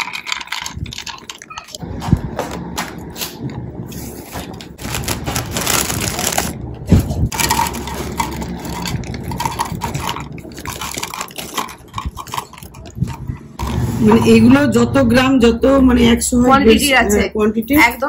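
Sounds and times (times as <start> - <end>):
plastic packet crinkling: 0.0 - 1.8, 4.8 - 13.2
raisins pouring into plastic box: 4.8 - 6.6, 7.3 - 12.7.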